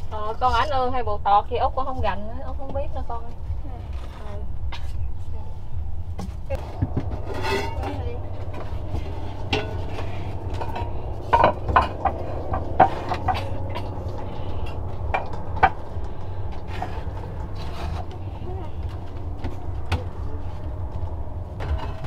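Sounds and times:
steady low rumble: 0.0 - 22.0
objects knocking and clattering: 6.1 - 22.0.

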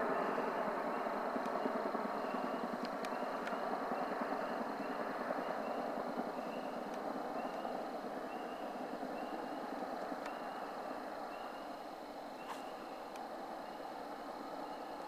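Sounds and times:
distant aircraft drone: 0.0 - 15.0
faint short chirps: 12.4 - 12.9.

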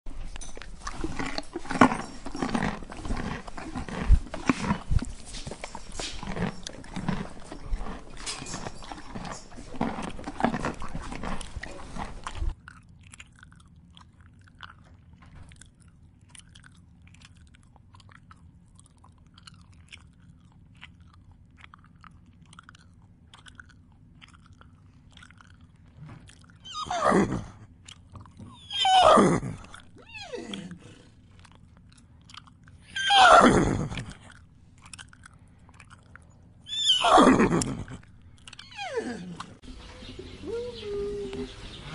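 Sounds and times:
horse chewing: 0.1 - 12.6
horse whinnying: 26.6 - 27.6, 28.5 - 31.0, 32.9 - 34.0, 36.7 - 37.9, 38.6 - 39.5.

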